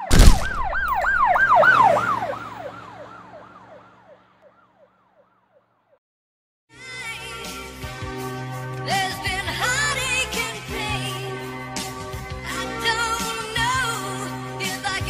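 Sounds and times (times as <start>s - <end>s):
siren yelping: 0.0s - 4.9s
music: 6.7s - 15.0s.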